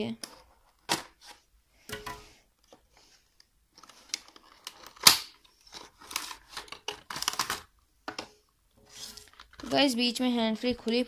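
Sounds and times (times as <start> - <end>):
paper rustling: 3.8 - 7.6.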